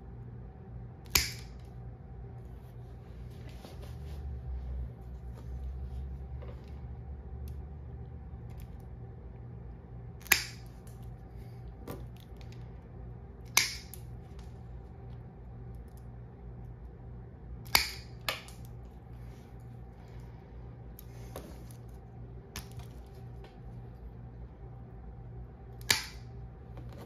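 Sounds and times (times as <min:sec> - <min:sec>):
nail clippers clipping: 0:01.1 - 0:01.5, 0:10.2 - 0:10.7, 0:13.5 - 0:14.0, 0:17.7 - 0:18.5.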